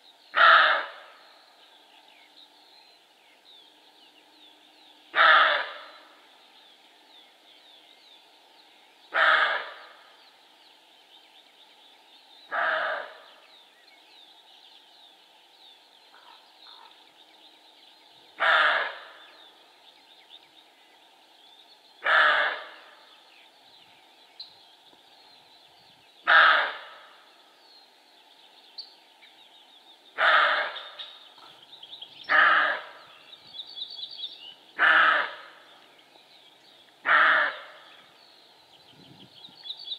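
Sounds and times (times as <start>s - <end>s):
deer barking: 26.3s - 26.8s, 30.2s - 30.8s.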